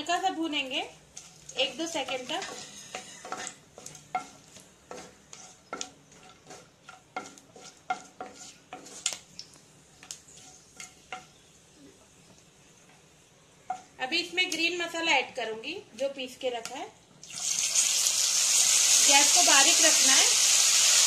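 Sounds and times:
spices sizzling in oil: 0.0s - 14.9s, 17.2s - 21.0s
wooden spoon scraping a pan: 1.1s - 9.3s, 10.2s - 11.4s.

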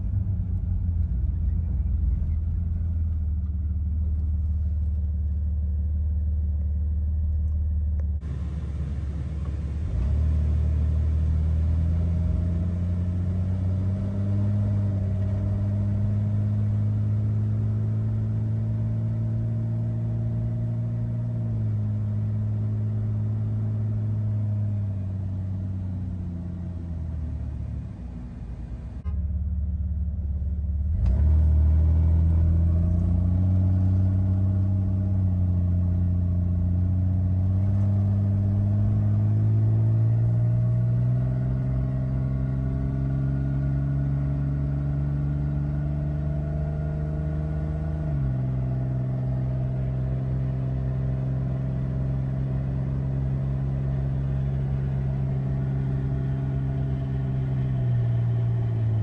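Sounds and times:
car engine accelerating from inside cabin: 0.0s - 59.0s.

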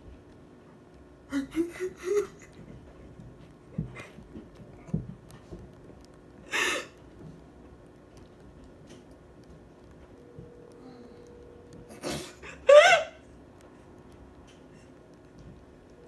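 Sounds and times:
woman breathing: 6.5s - 7.0s.

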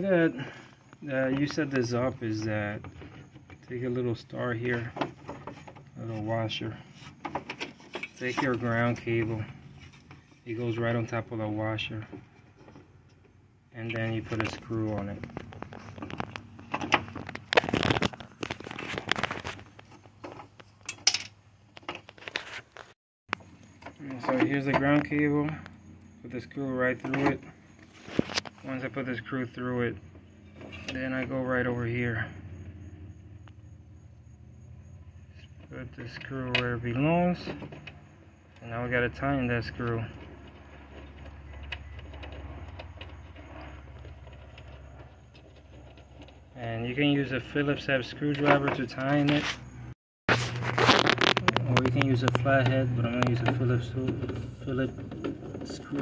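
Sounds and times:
scraping rustle: 1.4s - 13.0s, 13.8s - 20.8s, 21.8s - 23.0s, 27.1s - 28.7s, 48.5s - 56.0s
small screw clicking and scraping: 6.8s - 10.7s, 27.1s - 28.6s, 39.6s - 46.6s, 50.3s - 52.5s
hands handling small parts: 14.2s - 25.2s.

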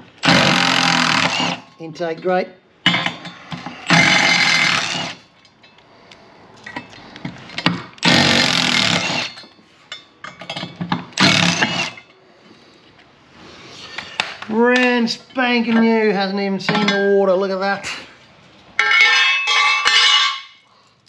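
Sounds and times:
cordless power driver bursts: 0.2s - 1.6s, 8.0s - 9.3s, 11.2s - 12.0s.

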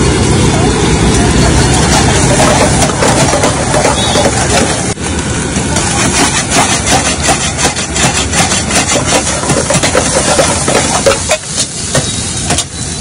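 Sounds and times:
metal ladle scraping a wok: 1.4s - 5.0s, 5.8s - 12.9s
onions sizzling in hot oil: 6.0s - 13.0s.

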